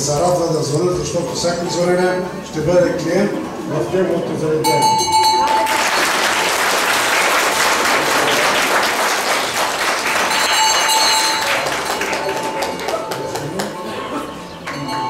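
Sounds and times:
metal bell ringing: 0:04.6 - 0:05.8, 0:10.2 - 0:13.2, 0:14.7 - 0:15.0
audience applauding: 0:05.4 - 0:15.0.

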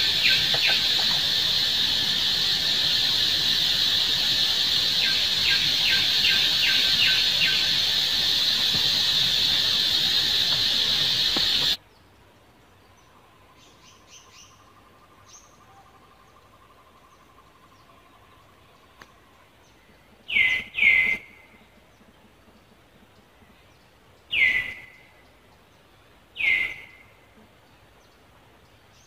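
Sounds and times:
high insect drone: 0:00.0 - 0:11.8
insect chirps: 0:00.0 - 0:11.8.

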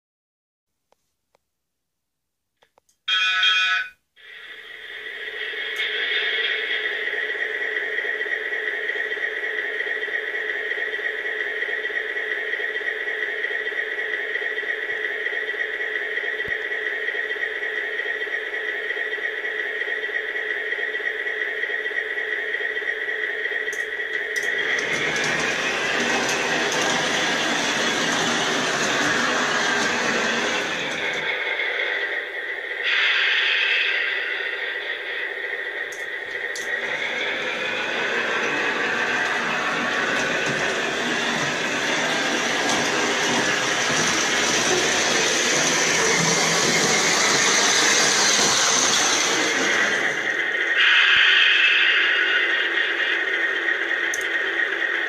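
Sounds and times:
model train motor whine: 0:04.2 - 0:55.0.

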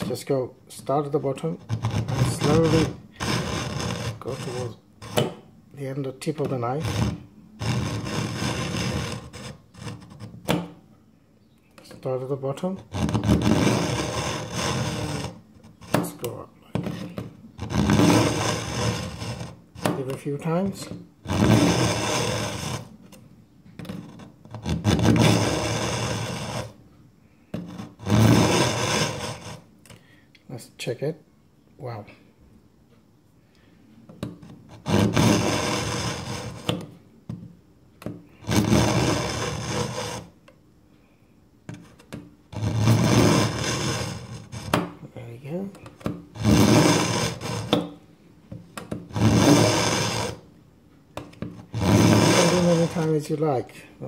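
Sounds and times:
knife scraping through sharpener: 0:01.3 - 0:05.4, 0:06.4 - 0:10.8, 0:12.9 - 0:23.2, 0:27.6 - 0:29.6, 0:34.4 - 0:36.9, 0:38.4 - 0:40.3, 0:41.7 - 0:44.9, 0:46.0 - 0:48.0, 0:48.9 - 0:50.4, 0:51.3 - 0:53.1.

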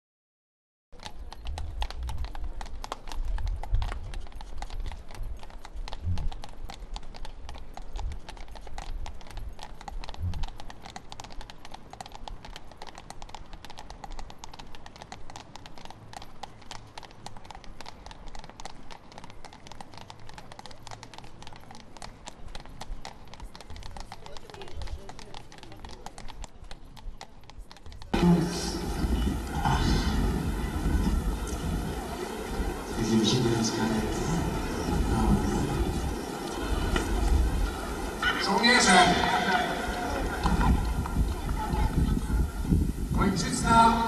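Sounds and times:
horses hooves clip-clopping: 0:01.0 - 0:44.0.

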